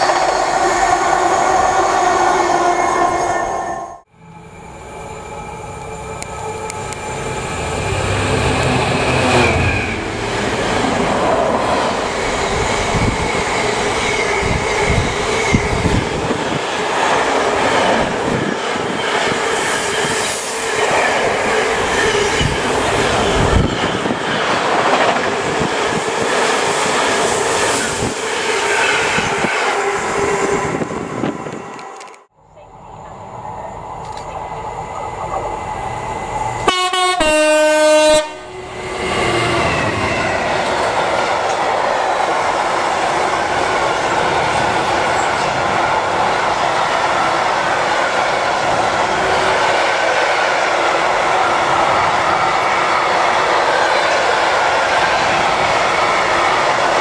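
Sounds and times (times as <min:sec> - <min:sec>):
train horn blast: 0:36.6 - 0:38.6.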